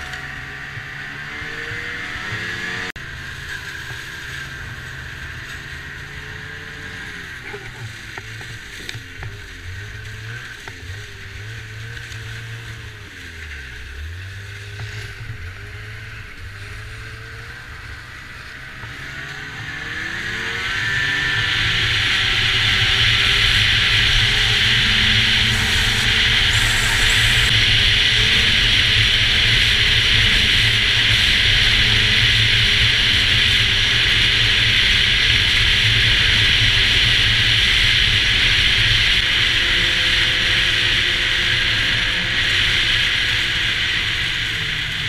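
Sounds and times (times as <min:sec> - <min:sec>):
snowmobile engine running: 0:00.0 - 0:45.0
rushing hiss: 0:21.6 - 0:37.8.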